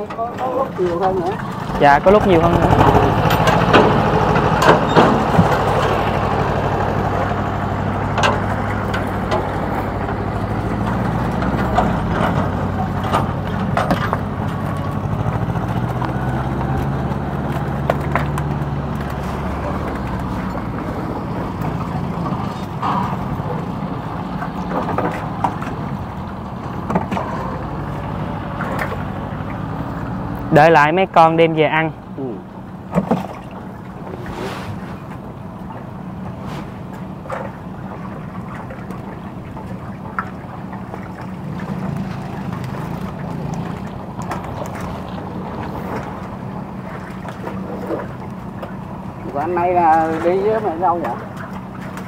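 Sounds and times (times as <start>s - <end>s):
boat engine running: 0.0s - 52.0s
knocks and clatters: 2.6s - 6.3s, 8.1s - 27.5s.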